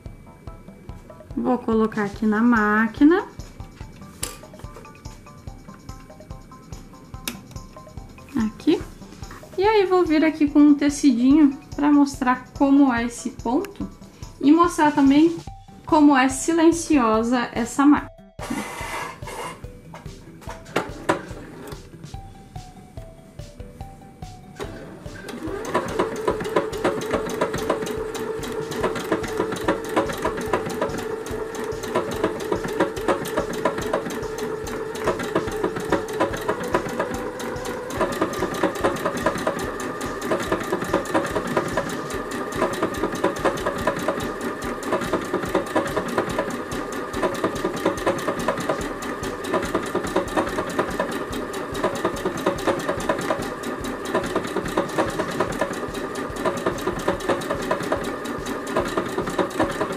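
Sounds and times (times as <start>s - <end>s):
sewing machine stitching: 18.4s - 19.6s, 20.7s - 21.9s, 24.6s - 59.9s.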